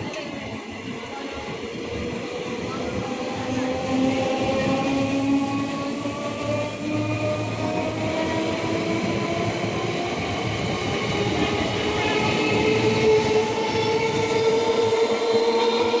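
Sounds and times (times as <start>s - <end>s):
train wheels on rails: 0.0s - 16.0s
electric train whine: 0.1s - 16.0s.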